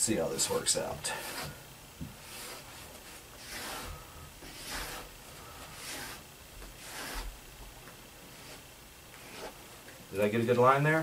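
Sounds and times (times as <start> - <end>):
marking tool scratching along metal: 2.2 - 5.1, 5.7 - 7.3.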